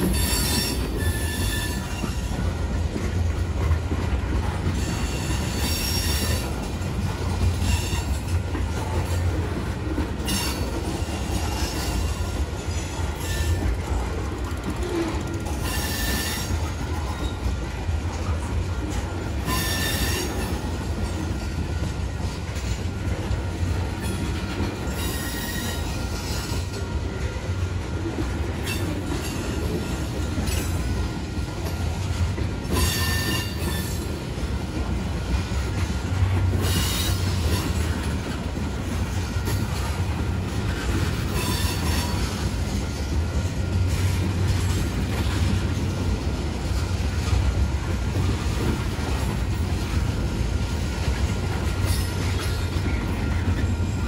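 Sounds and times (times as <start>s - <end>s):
train wheels rumbling on rail: 0.0s - 54.0s
high-pitched wheel squeals: 0.1s - 2.3s, 15.6s - 17.4s, 19.4s - 20.6s, 24.9s - 26.7s, 32.7s - 34.0s, 41.3s - 42.3s.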